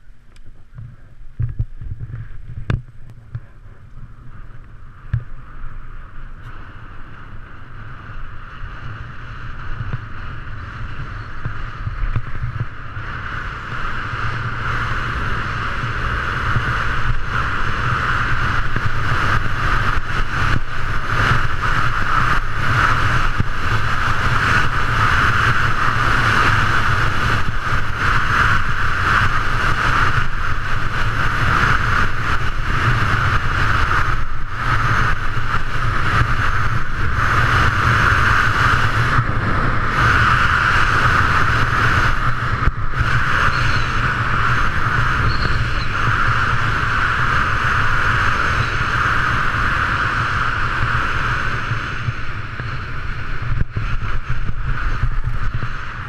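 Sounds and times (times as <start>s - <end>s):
wind rushing over microphone: 0.0s - 56.0s
skis scraping over snow: 8.3s - 56.0s.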